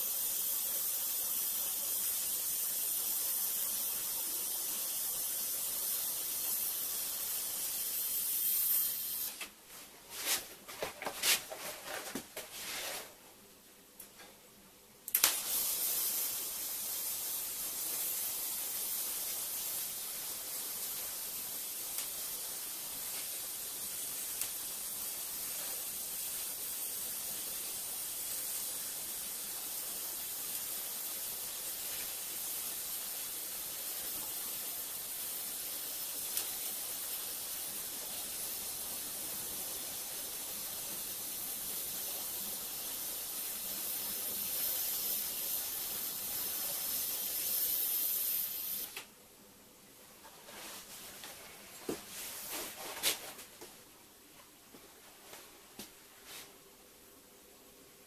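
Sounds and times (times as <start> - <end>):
arc welding hiss: 0.0 - 9.5, 15.1 - 49.1
welding arc pops: 15.1 - 25.8, 35.1 - 49.1.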